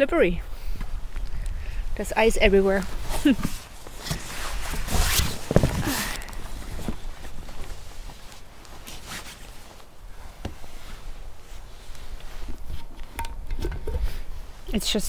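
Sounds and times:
jacket rustling: 0:02.5 - 0:13.2.

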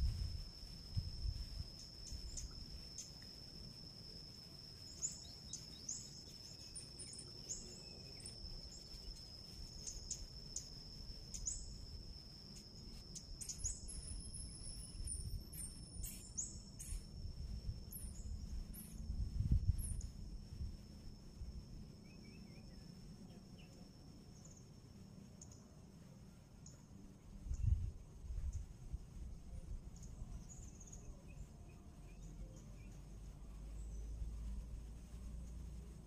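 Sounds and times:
wind rumble on microphone: 0:00.0 - 0:03.0, 0:13.1 - 0:21.9, 0:27.2 - 0:36.0
high-pitched insect drone: 0:00.0 - 0:36.0.

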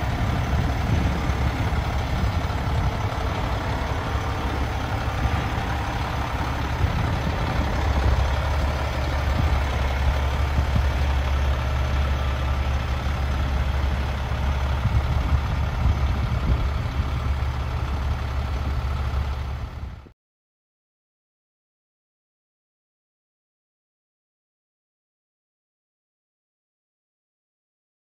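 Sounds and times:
truck diesel engine rumbling: 0:00.0 - 0:20.1.

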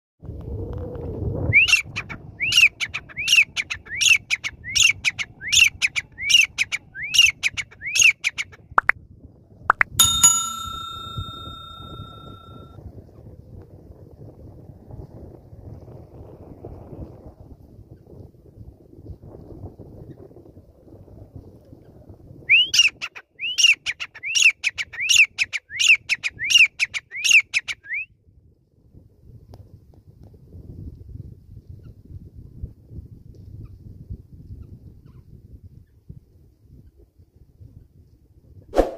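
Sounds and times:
bright electronic chime: 0:10.0 - 0:12.6.

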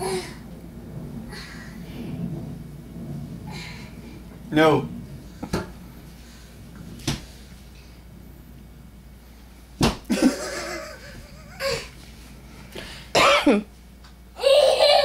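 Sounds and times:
hands slapping a wall: 0:07.0 - 0:07.4, 0:09.8 - 0:10.2
toddler laughing: 0:14.4 - 0:15.0.

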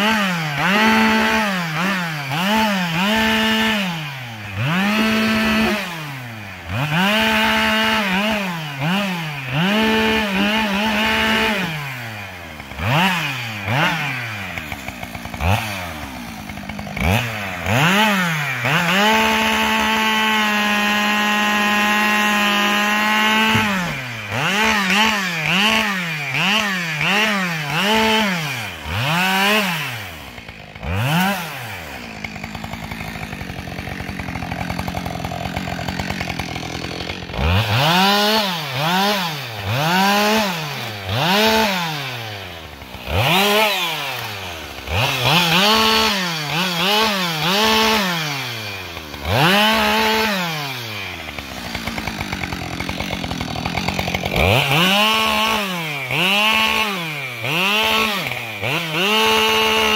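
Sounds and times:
chainsaw revving: 0:00.0 - 0:59.9.

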